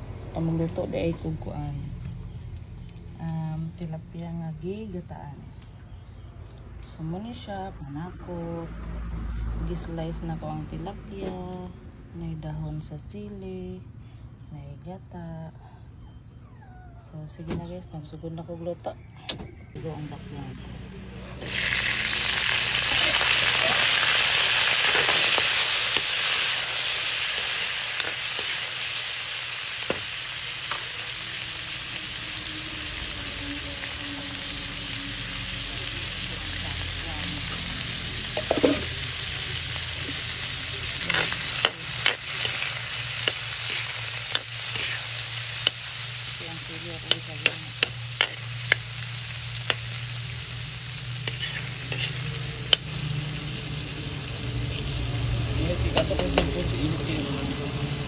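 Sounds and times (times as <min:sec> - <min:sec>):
food sizzling in hot oil: 0:19.9 - 0:58.0
metal spatula scraping wok: 0:22.4 - 0:29.0, 0:37.5 - 0:53.9.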